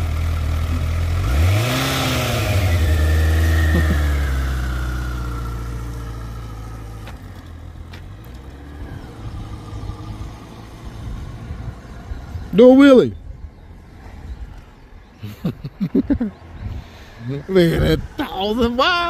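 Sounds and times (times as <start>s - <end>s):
motorcycle engine revving: 0.0s - 14.9s.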